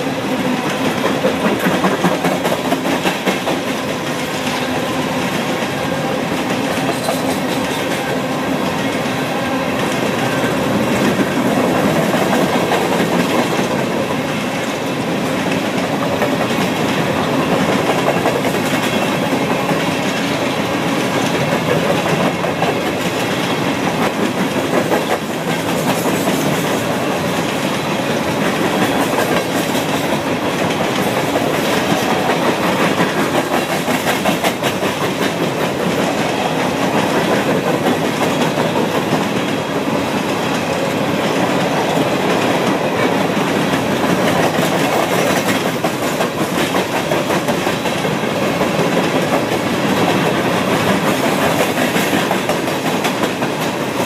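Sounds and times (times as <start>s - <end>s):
wheels clacking over rail joints: 15.2s - 54.0s.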